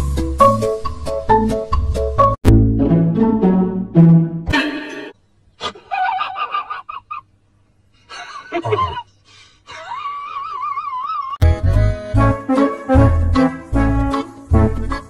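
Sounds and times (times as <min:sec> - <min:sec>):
background music: 0:00.0 - 0:05.2, 0:11.4 - 0:15.0.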